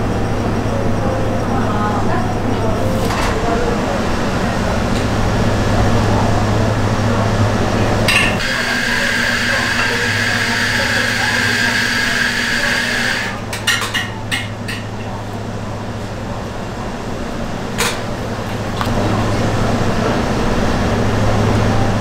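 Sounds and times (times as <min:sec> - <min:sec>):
high whine: 0:00.0 - 0:13.5
kitchen equipment hum: 0:00.0 - 0:22.0
utensils clicking and clinking: 0:08.1 - 0:15.2.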